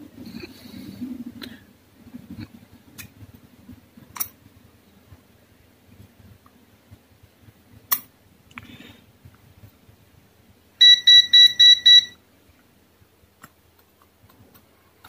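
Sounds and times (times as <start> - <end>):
high-pitched electronic beeps: 10.8 - 12.2.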